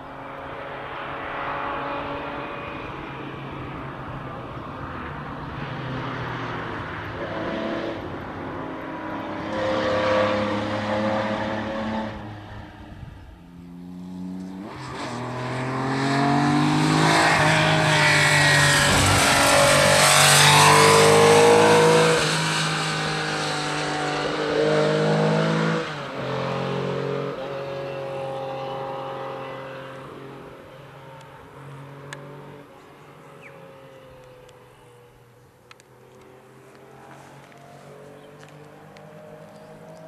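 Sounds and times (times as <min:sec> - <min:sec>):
rally car engine revving through gears: 0:14.1 - 0:28.4.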